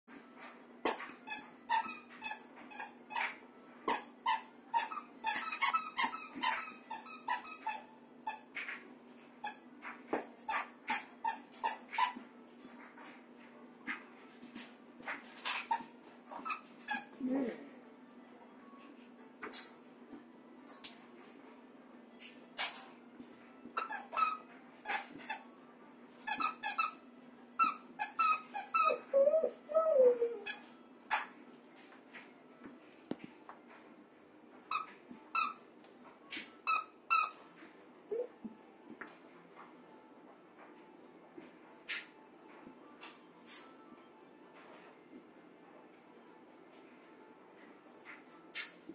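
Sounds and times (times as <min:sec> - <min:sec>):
squeaky toy squeaking: 0:00.9 - 0:08.7, 0:09.4 - 0:09.6, 0:10.5 - 0:12.2, 0:15.4 - 0:17.2, 0:23.8 - 0:25.5, 0:26.2 - 0:27.0, 0:27.6 - 0:31.4, 0:34.7 - 0:35.6, 0:36.4 - 0:38.3.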